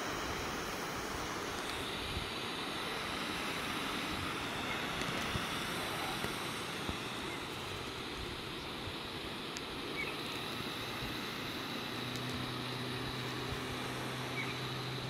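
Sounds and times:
air hissing out of valve: 0:00.0 - 0:09.2.

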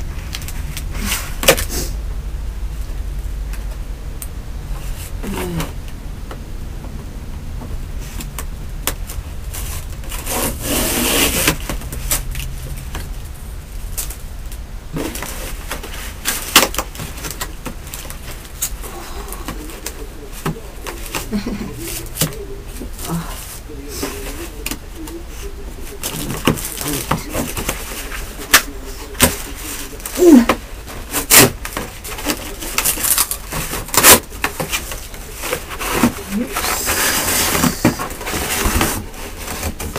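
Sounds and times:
cardboard box tearing: 0:09.5 - 0:12.8, 0:25.9 - 0:39.9.

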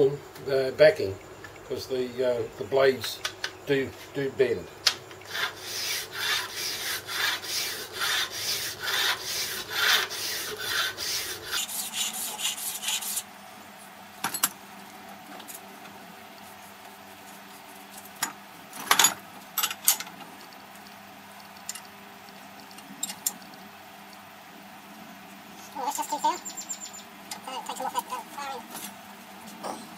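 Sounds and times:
file rasping on metal: 0:05.3 - 0:13.3.

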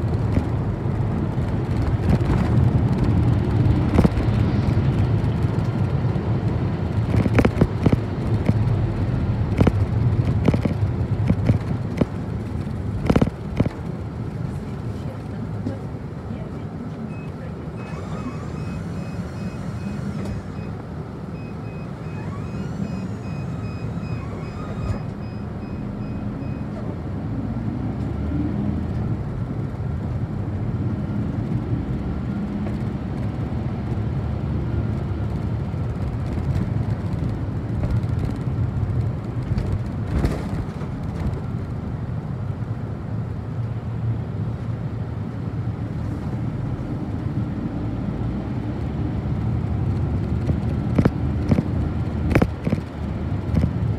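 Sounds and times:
bus engine and road noise: 0:00.0 - 0:53.9
repeating high beep: 0:18.6 - 0:20.7, 0:21.3 - 0:26.7.

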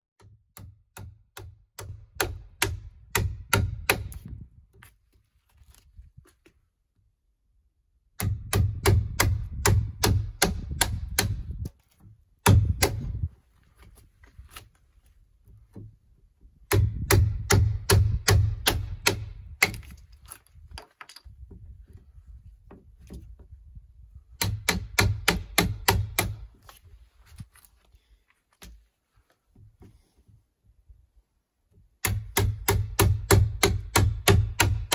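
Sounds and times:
hammer striking chisel into log: 0:00.2 - 0:04.3, 0:08.2 - 0:11.7, 0:12.4 - 0:13.2, 0:16.7 - 0:20.0, 0:24.4 - 0:26.4, 0:32.0 - 0:34.9.

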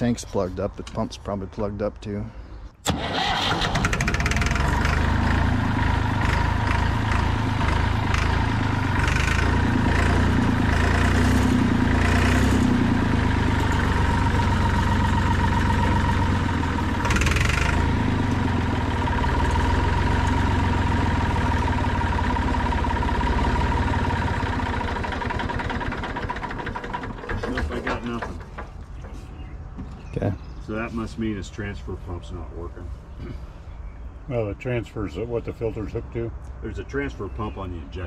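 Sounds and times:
starter motor whine: 0:02.8 - 0:28.2
tractor engine cranking: 0:02.8 - 0:29.2.

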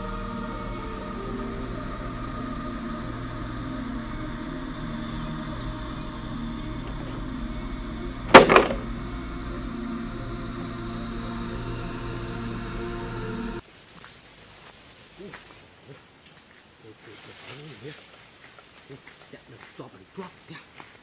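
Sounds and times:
steady low hum: 0:00.0 - 0:13.6
plastic trap door snapping shut: 0:08.3 - 0:08.8.

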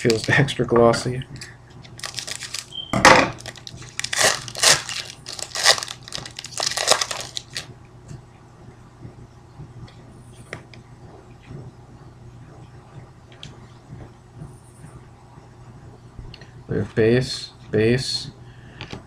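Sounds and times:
cards being handled: 0:00.0 - 0:00.4, 0:01.8 - 0:02.7, 0:03.4 - 0:07.6
card pack wrapper crinkling: 0:00.0 - 0:00.5, 0:01.9 - 0:02.8, 0:03.4 - 0:07.7.

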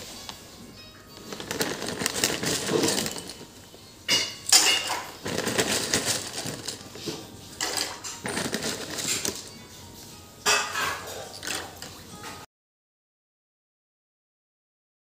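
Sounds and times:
plastic packet crinkling: 0:01.0 - 0:09.7.

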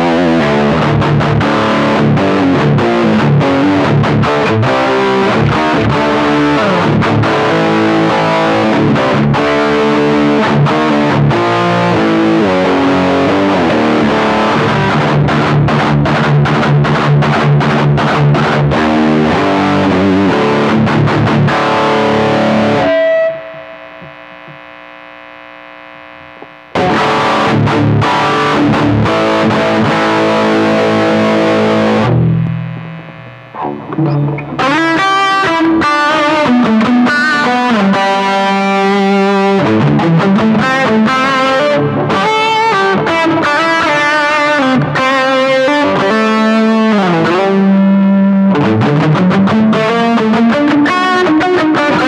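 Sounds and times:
distorted electric guitar riffing: 0:00.0 - 0:52.0
guitar lingering ring: 0:21.5 - 0:24.8, 0:26.2 - 0:35.7.

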